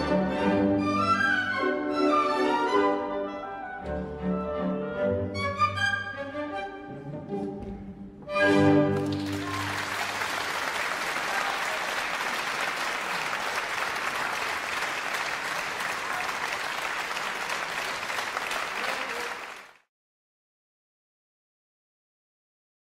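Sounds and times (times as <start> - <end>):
audience applause: 8.9 - 19.9.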